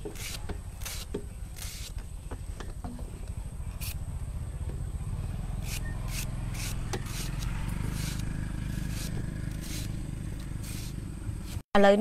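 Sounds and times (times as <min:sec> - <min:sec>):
knife scraping slices off banana: 0:00.0 - 0:02.0, 0:05.6 - 0:11.6.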